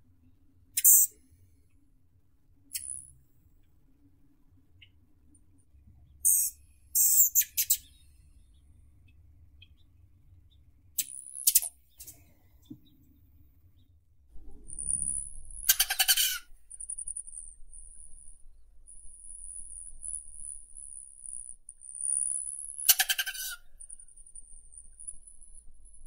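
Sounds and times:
steady high-pitched buzz: 14.4 - 22.9, 23.6 - 26.0.

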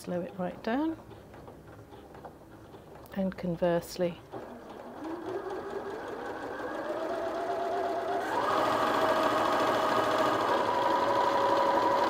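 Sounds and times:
sewing machine whine: 4.3 - 12.0.

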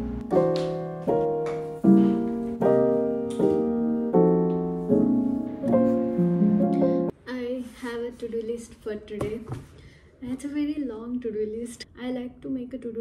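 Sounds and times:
piano chords: 0.0 - 7.1.

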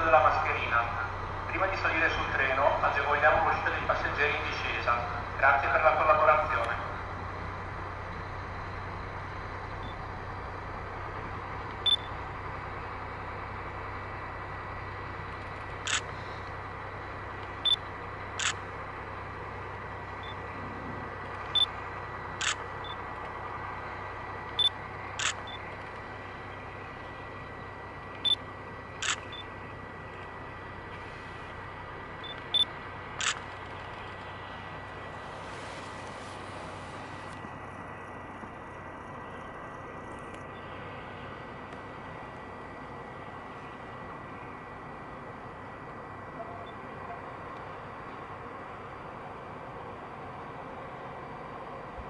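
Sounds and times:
electrical hum: 0.0 - 52.0
camera shutter clicking: 33.2 - 33.5.

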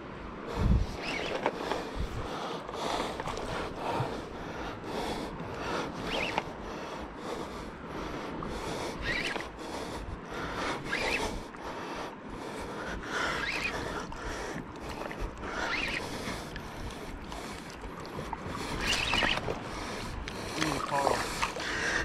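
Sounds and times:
water sloshing around legs: 0.8 - 4.4, 12.4 - 22.0.

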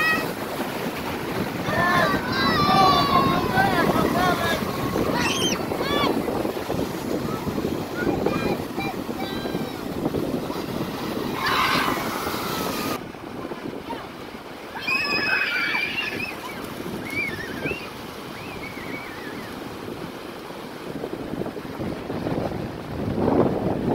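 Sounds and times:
sea surf: 0.0 - 23.9
wind on microphone: 0.0 - 23.9
faint high voices calling: 14.8 - 19.6.

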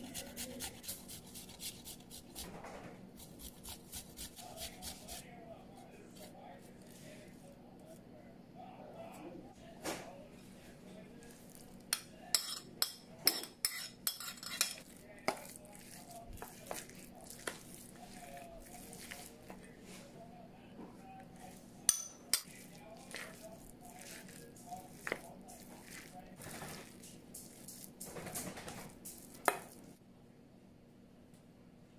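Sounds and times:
vegetables scraped and stirred: 0.0 - 8.0, 10.3 - 20.2, 21.2 - 30.0
metal spoon clinking against bowl: 11.9 - 14.8, 21.9 - 23.3.

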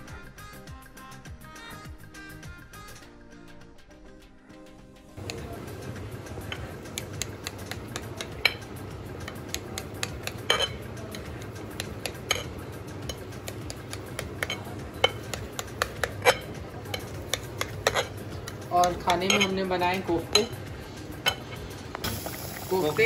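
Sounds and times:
knife tapping against glass dish: 5.2 - 5.5, 6.3 - 19.6
steady low hum: 5.2 - 22.9.

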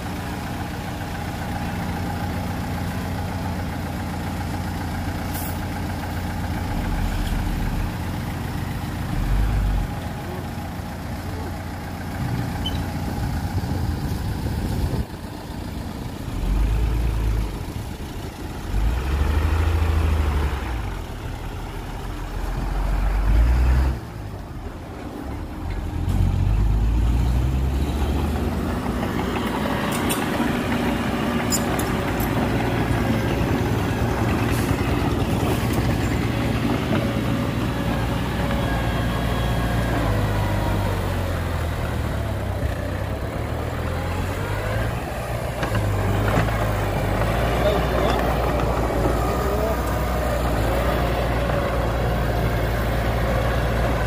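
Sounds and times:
heavy diesel engines running: 0.0 - 54.0.

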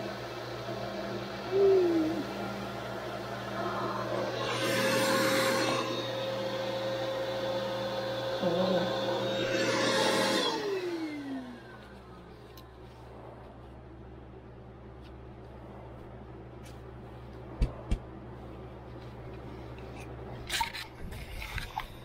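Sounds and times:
belt grinder whining: 4.0 - 11.9.

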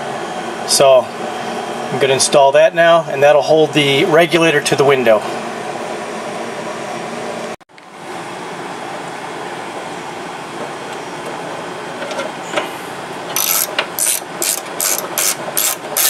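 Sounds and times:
socket ratchet wrench clicking: 13.4 - 16.0.

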